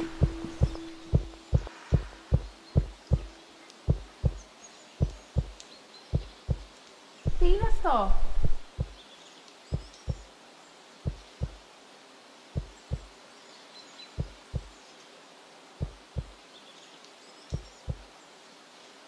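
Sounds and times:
heartbeat thumps: 0:00.0 - 0:03.3, 0:03.9 - 0:04.4, 0:05.0 - 0:06.7, 0:07.3 - 0:09.0, 0:11.1 - 0:11.6, 0:12.6 - 0:13.1, 0:14.2 - 0:14.7, 0:15.8 - 0:16.3, 0:17.6 - 0:18.0.

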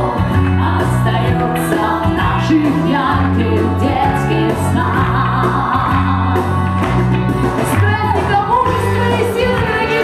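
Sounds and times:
woman singing into microphone: 0:00.0 - 0:06.7, 0:07.6 - 0:10.0
backing music with bass: 0:00.0 - 0:10.0.

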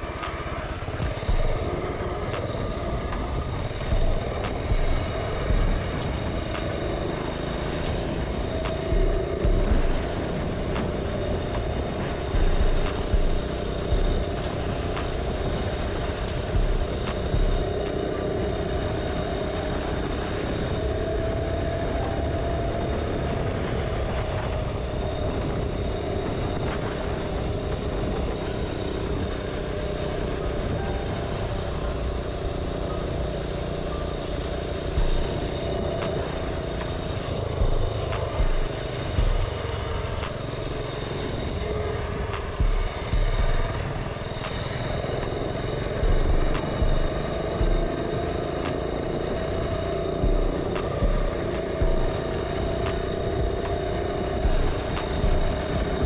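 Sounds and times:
mini bike engine running: 0:00.0 - 0:21.3, 0:31.7 - 0:56.0
wind rushing over microphone: 0:00.0 - 0:56.0.

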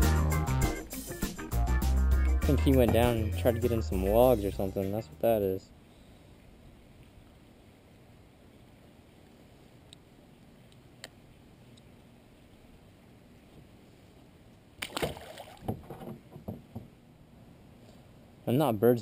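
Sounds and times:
fish splashing in water: 0:14.8 - 0:15.7.

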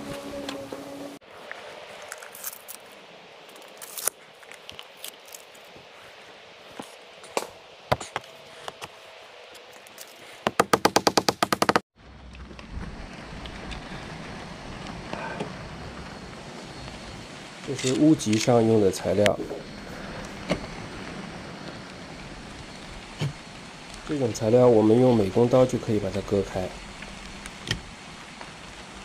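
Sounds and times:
steady low rumble: 0:12.0 - 0:17.8, 0:18.5 - 0:29.0.

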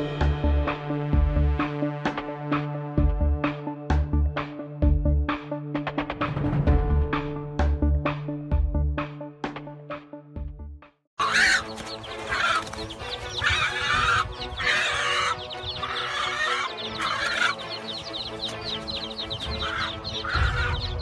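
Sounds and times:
background music: 0:00.0 - 0:21.0
hen squawking and clucking: 0:11.2 - 0:21.0.

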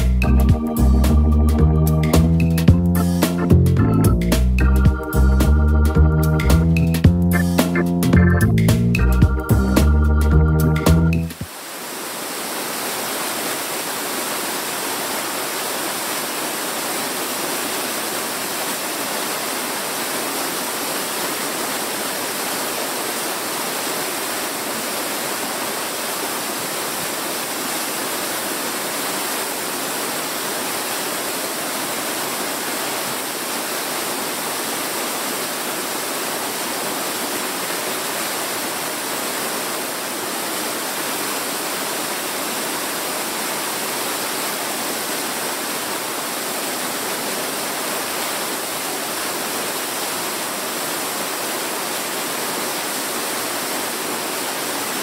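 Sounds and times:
waterfall rushing: 0:11.2 - 0:55.0.

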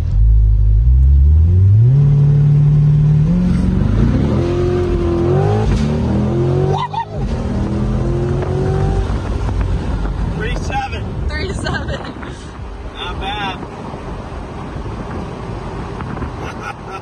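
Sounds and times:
car engine accelerating: 0:00.0 - 0:12.2.

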